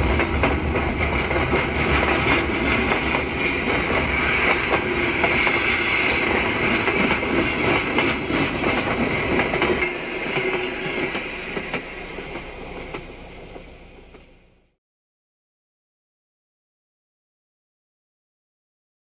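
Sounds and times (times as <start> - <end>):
train wheels clicking over rail joints: 0.0 - 14.4.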